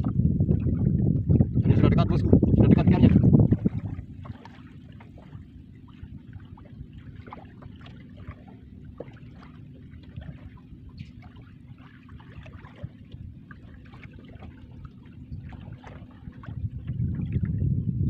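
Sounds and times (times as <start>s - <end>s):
steady low rumble: 0.0s - 18.0s
water lapping against boat hull: 0.0s - 18.0s
small drips and splashes: 3.6s - 17.6s.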